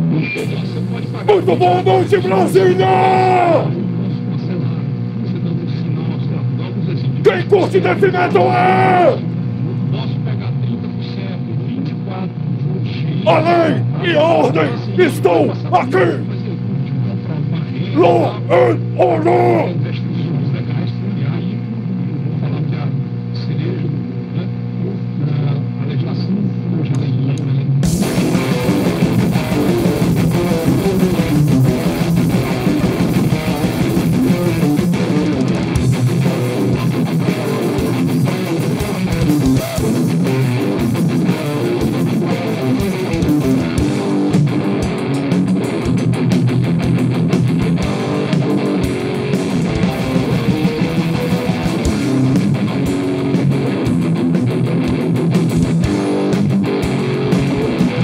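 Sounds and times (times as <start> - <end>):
bass guitar: 0.0 - 3.8, 7.2 - 9.4, 13.2 - 16.3, 18.0 - 19.8, 27.8 - 58.0
electric guitar: 0.0 - 4.3, 7.3 - 9.5, 18.0 - 19.8, 27.8 - 58.0.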